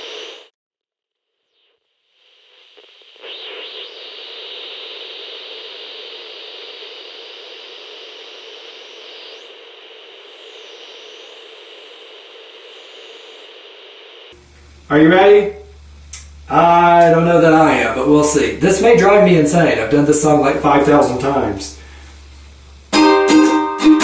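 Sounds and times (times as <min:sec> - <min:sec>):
television static hiss: 0:00.0 - 0:00.5, 0:02.0 - 0:24.0
high whine sweeping in pitch: 0:01.7 - 0:24.0.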